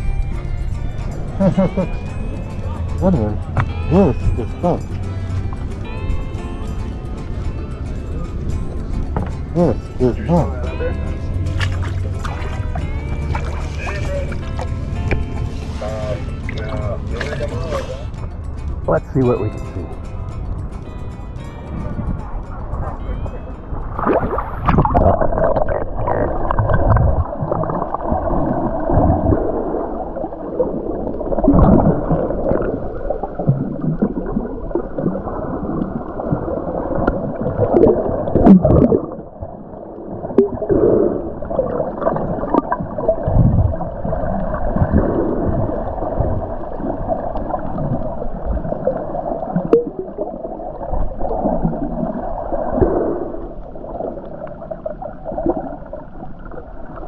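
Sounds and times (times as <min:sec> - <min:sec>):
low underwater thumps: 0:00.0 - 0:29.6, 0:35.8 - 0:39.6, 0:40.3 - 0:48.8
underwater gurgling and sloshing: 0:00.0 - 0:57.0.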